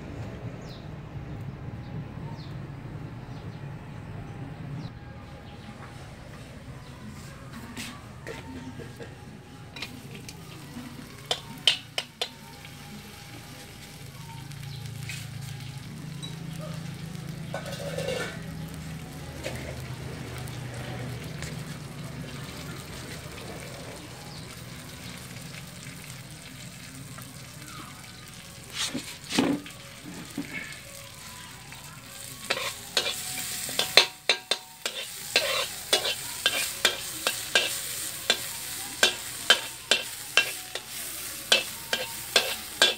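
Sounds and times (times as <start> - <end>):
food sizzling in a wok: 9.8 - 42.9
metal spatula scraping wok: 17.5 - 18.4, 32.4 - 42.9.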